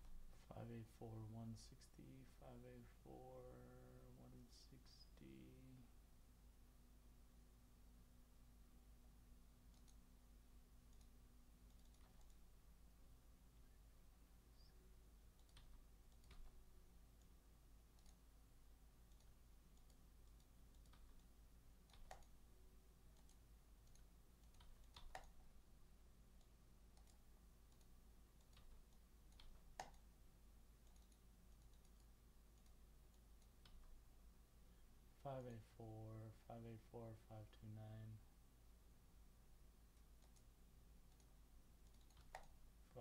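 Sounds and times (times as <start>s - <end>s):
low room hum: 0.0s - 43.0s
faint clicks: 9.7s - 10.0s, 10.9s - 12.4s, 39.9s - 40.5s, 41.1s - 42.6s.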